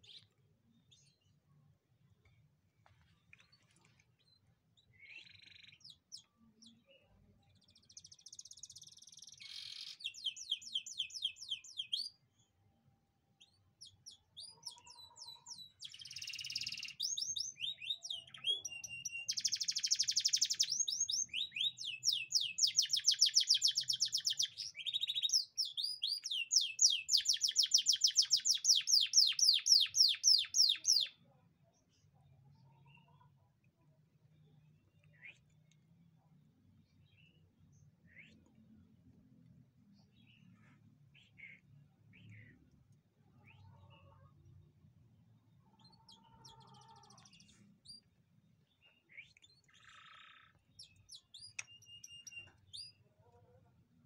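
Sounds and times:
canary singing trills: 4.2 - 6.9, 7.7 - 12.2, 13.4 - 31.2, 45.6 - 48.1, 48.8 - 53.1.

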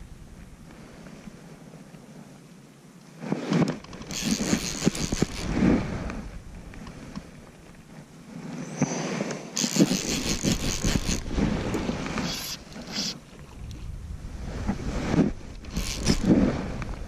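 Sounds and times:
fly reel rustling and scraping: 3.4 - 5.7, 8.6 - 13.2, 15.6 - 16.4
wind buffeting microphone: 3.7 - 17.0.

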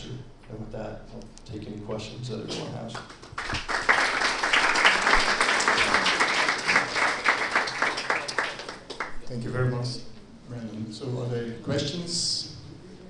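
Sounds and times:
audience applauding: 3.0 - 9.3.

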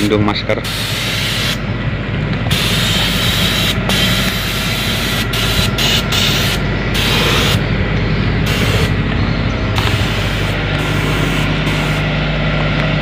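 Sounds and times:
low mechanical drone: 0.0 - 13.0
spray gun hissing: 0.6 - 1.6, 2.5 - 7.6, 8.4 - 9.0, 9.8 - 12.1.

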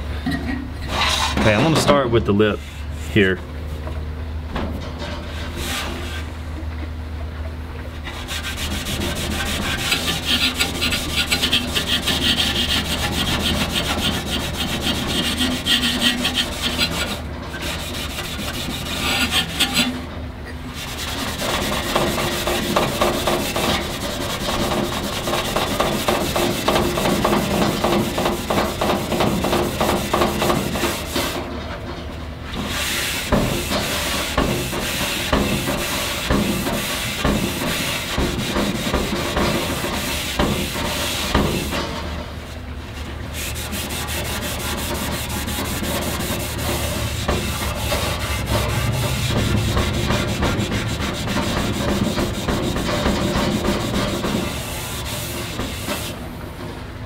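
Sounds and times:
abrasive pad scrubbing metal: 8.1 - 20.0, 20.7 - 31.4, 32.6 - 41.9, 43.3 - 56.2.

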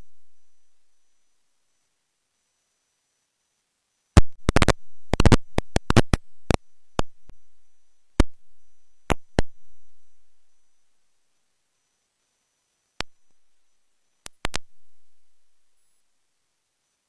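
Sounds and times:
sharp clicks and pops: 4.2 - 7.4, 8.1 - 10.3, 13.0 - 13.6, 14.2 - 15.4.

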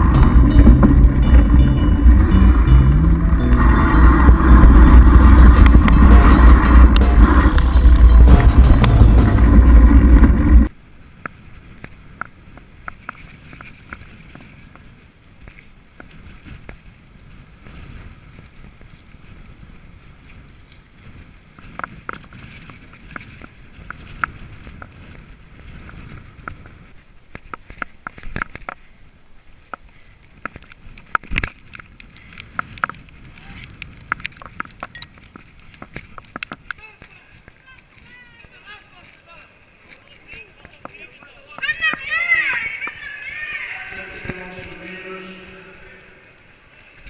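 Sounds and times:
rumble of tyres and air: 0.0 - 47.0
bike clicks and rattles: 11.2 - 16.9, 17.8 - 29.0, 29.6 - 43.4.

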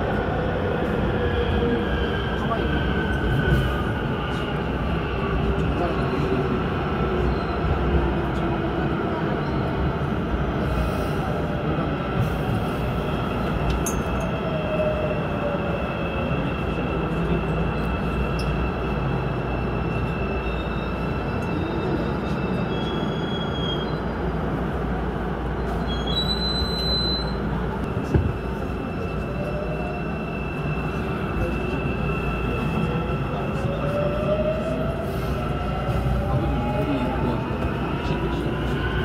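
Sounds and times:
train rumbling in tunnel: 0.0 - 39.0
wheel squeals: 25.7 - 27.6.

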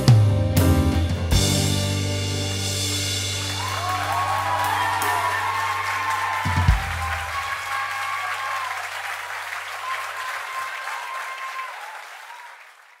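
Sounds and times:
audience applauding: 3.0 - 13.0.

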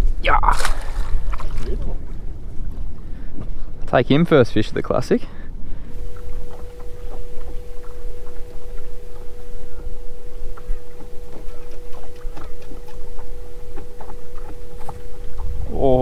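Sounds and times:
low rumble of wind and water: 0.0 - 16.0
electric motor whine: 5.9 - 16.0.

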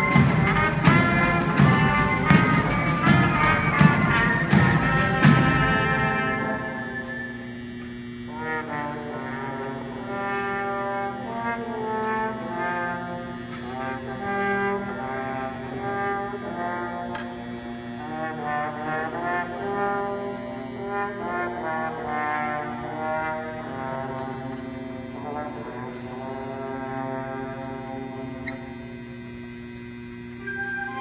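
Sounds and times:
percussion strokes: 0.0 - 10.2, 22.8 - 31.0
brass band playing: 0.0 - 28.6, 30.4 - 31.0.

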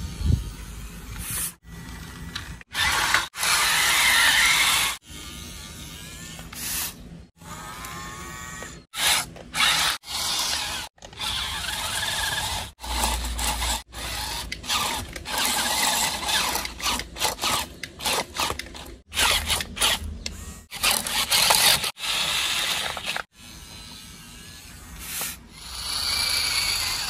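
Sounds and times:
toy truck motor whirring: 0.0 - 27.0.

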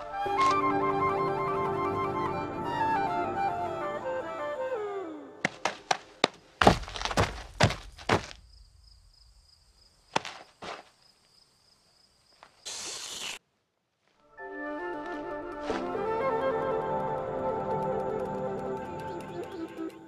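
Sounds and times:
short hiss: 12.6 - 13.4.

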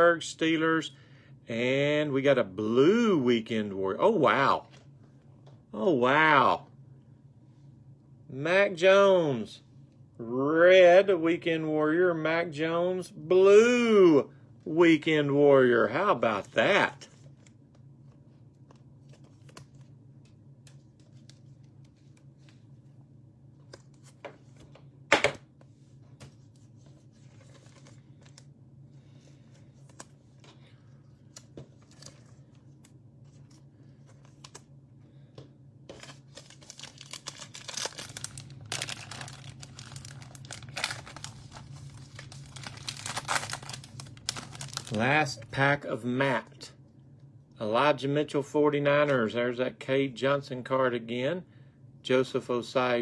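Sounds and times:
steady low hum: 0.0 - 53.0
foil wrapper crinkling and tearing: 35.9 - 45.4.

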